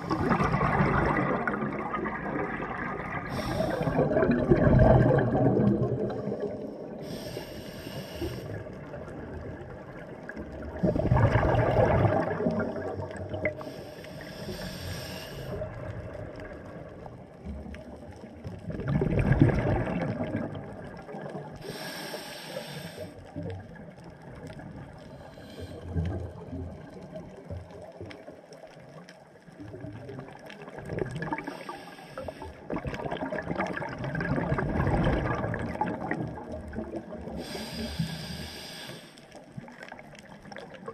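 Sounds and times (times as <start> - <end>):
bubbling exhalation: 0.0 - 6.7, 10.6 - 13.6, 18.6 - 21.3, 32.6 - 38.2
regulator hissing inhalation: 3.2 - 4.0, 7.0 - 8.6, 13.6 - 15.6, 21.6 - 23.2, 31.4 - 32.6, 37.4 - 39.4.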